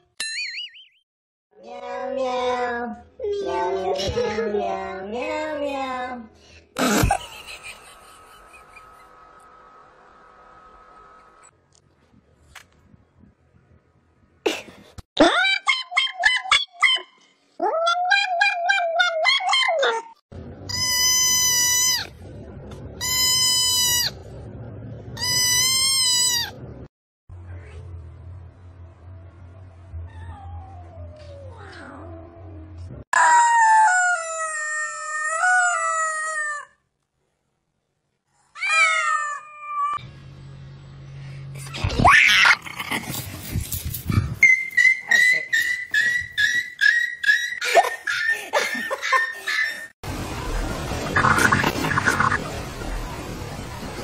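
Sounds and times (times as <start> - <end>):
rubber chicken toy squawking: 20.7 - 22.1, 25.2 - 26.6
dog yelping: 44.4 - 49.9.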